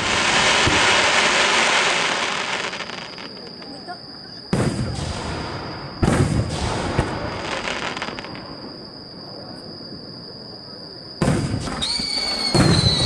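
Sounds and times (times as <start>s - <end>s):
firework crackling: 0.0s - 3.8s, 11.2s - 13.0s
firework shell booming: 4.5s - 7.9s, 11.2s - 13.0s.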